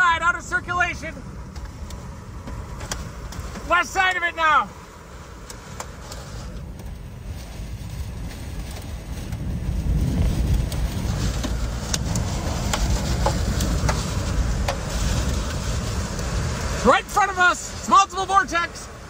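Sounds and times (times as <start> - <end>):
wind roaring: 0.0 - 19.0
sharp ticks against vehicle: 1.5 - 4.2, 5.4 - 7.0, 10.5 - 16.4.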